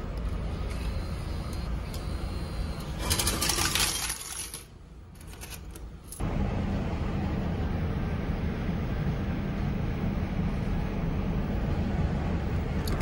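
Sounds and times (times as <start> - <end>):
coins clattering into tray: 3.0 - 4.6.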